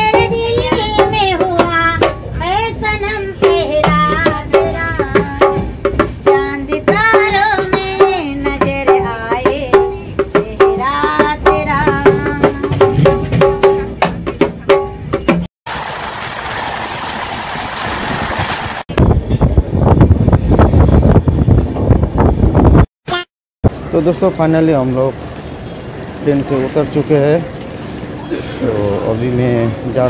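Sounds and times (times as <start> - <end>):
woman singing folk song: 0.0 - 12.9
wind: 0.0 - 30.0
hand drum beating: 3.4 - 15.5
passing train rushing: 23.7 - 30.0.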